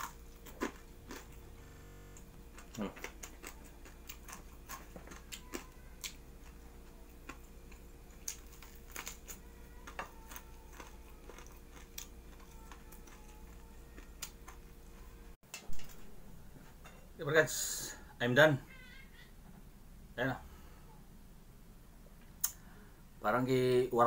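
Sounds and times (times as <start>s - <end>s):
person chewing food: 0.0s - 16.6s
low steady hum: 0.0s - 24.0s.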